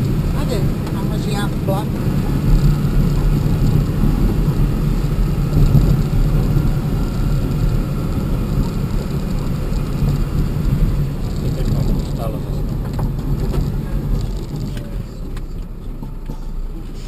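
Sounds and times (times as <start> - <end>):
vehicle driving on gravel road: 0.0 - 17.0.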